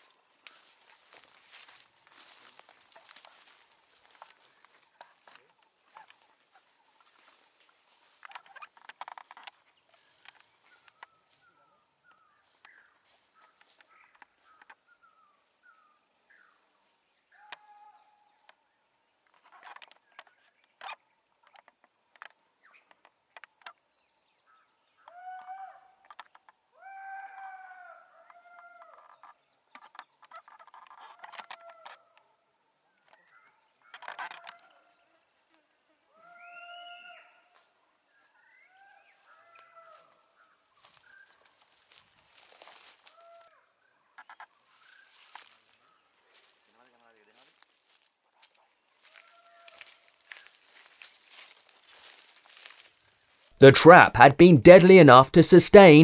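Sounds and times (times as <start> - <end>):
high-pitched insect drone: 0.0 - 14.8, 40.8 - 43.5, 44.2 - 53.5.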